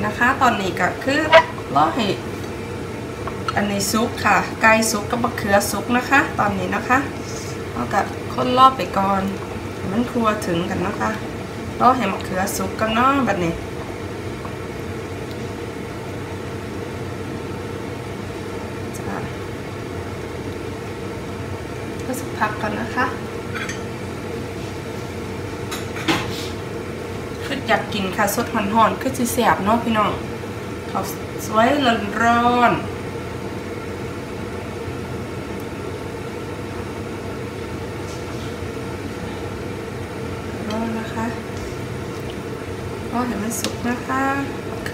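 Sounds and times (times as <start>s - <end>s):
low mechanical hum: 0.0s - 44.9s
spatula scraping wok: 1.2s - 1.6s.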